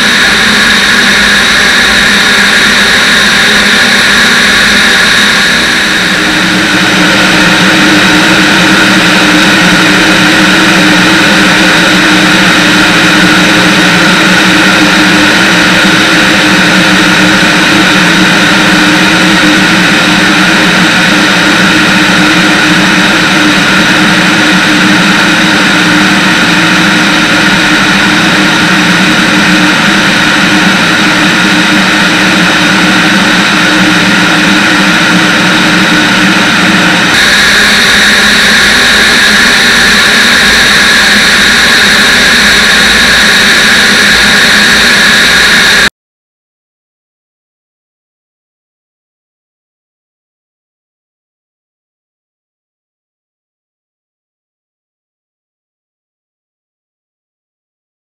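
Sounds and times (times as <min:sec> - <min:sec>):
aircraft engine droning: 0:00.0 - 0:45.9
airflow rushing over microphone: 0:00.0 - 0:45.9.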